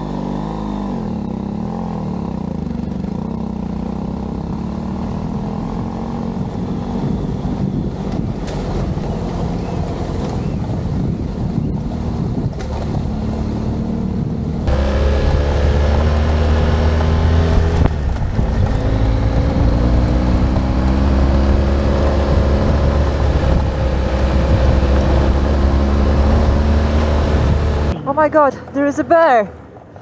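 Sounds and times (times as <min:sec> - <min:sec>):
motorcycle engine running: 0:00.0 - 0:28.3
wind on microphone: 0:05.6 - 0:28.0.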